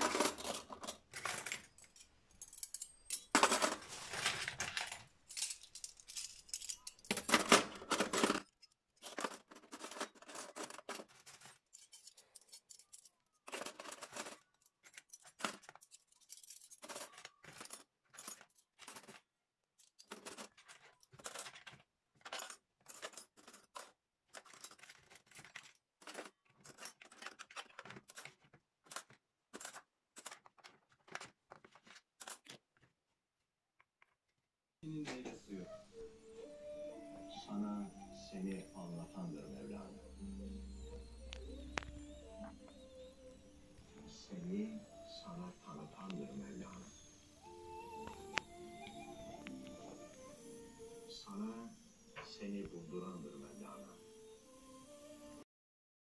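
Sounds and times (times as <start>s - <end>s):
cutlery clinking into tray: 0.0s - 3.9s.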